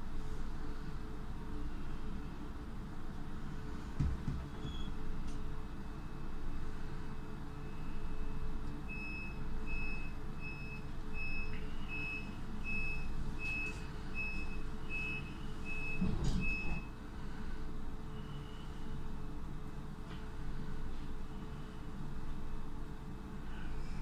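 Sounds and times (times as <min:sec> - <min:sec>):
train low hum: 0:00.0 - 0:24.0
thump: 0:04.0 - 0:04.4
short high door warning beeps: 0:07.7 - 0:16.9.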